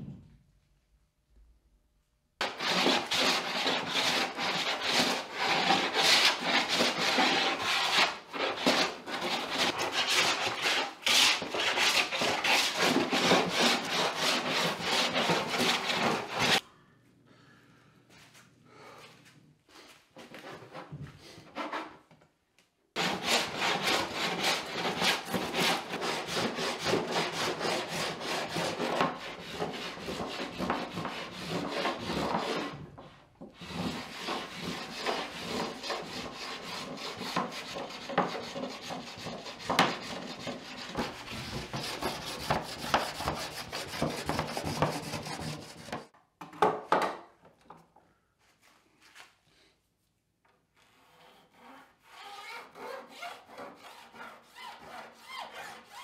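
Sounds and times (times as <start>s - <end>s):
hand plane cutting wood: 2.4s - 16.6s, 23.0s - 32.8s, 33.6s - 46.1s, 50.9s - 56.0s.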